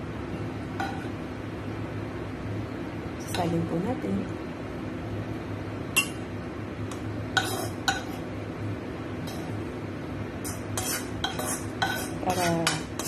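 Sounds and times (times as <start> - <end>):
steady low hum: 0.0 - 13.0
utensil clinking against wok: 10.4 - 13.0.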